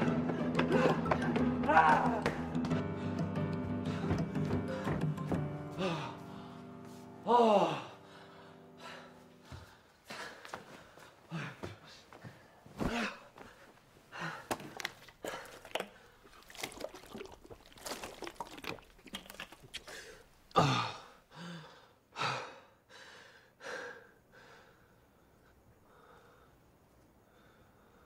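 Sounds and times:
man gasping and breathing heavily: 5.8s - 6.6s, 7.3s - 16.2s, 19.8s - 24.8s.

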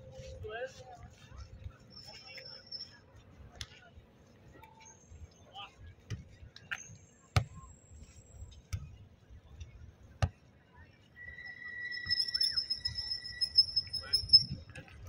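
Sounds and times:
low background murmur: 0.0s - 15.0s
steady high-pitched tone: 1.9s - 3.0s, 11.2s - 14.7s.

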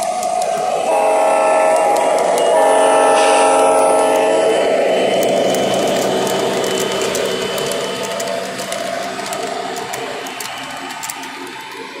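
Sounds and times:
model train cars rolling: 0.0s - 12.0s
wheels clicking over rail joints: 5.1s - 12.0s.

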